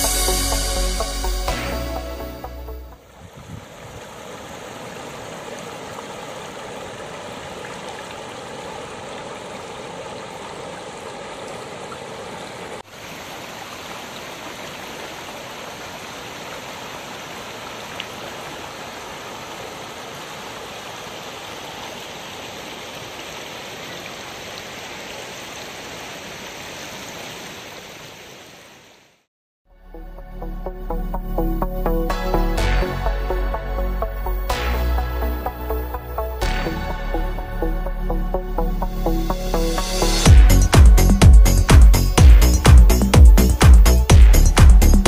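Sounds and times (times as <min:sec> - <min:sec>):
river rushing over rocks: 0:03.6 - 0:28.1.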